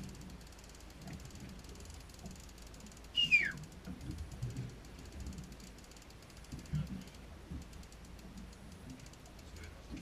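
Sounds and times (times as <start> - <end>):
fishing reel clicking: 0.0 - 9.8
falling whistle: 3.2 - 3.6.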